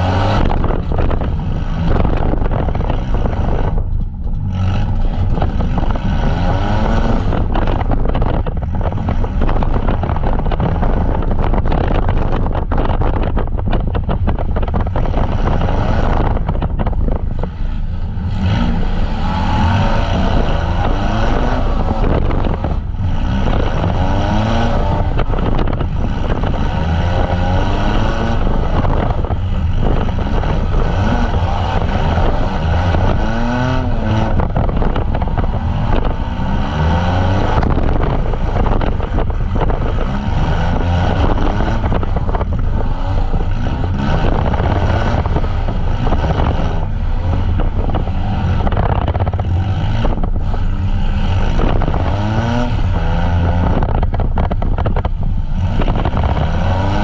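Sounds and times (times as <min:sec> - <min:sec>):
van engines revving hard: 0:00.0 - 0:57.0.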